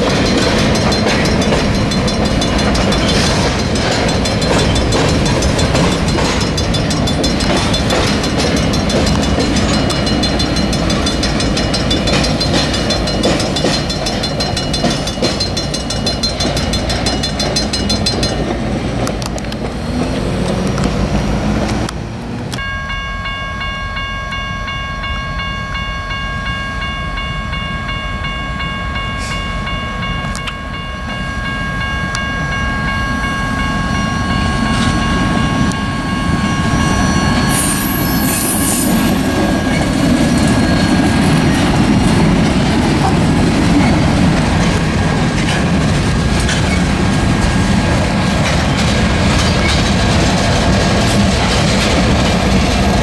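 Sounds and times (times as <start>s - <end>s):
wheel clicks on rails: 0.0s - 19.7s
diesel locomotive engine rumble: 0.0s - 53.0s
steady high multi-pitch tone: 22.6s - 42.4s.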